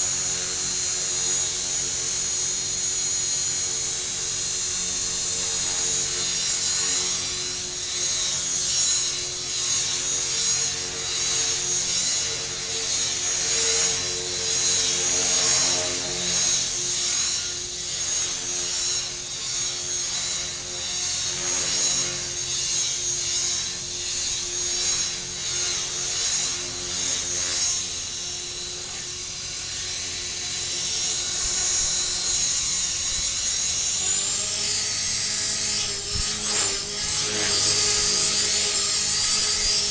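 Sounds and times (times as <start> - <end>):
rc helicopter motor whine: 0.0 - 39.9
rotor humming: 23.9 - 39.9.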